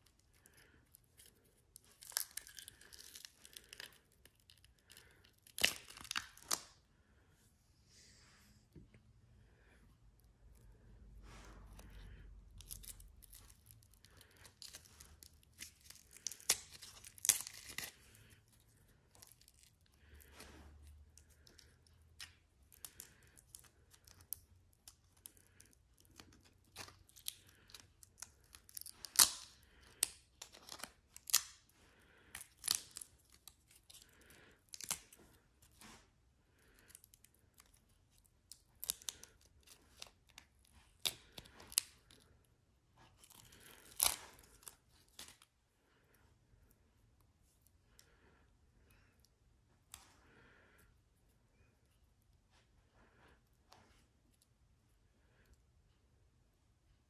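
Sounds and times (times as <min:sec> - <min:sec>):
resin sheet cracking: 0:12.6 - 0:18.4, 0:21.2 - 0:31.6, 0:43.2 - 0:45.4.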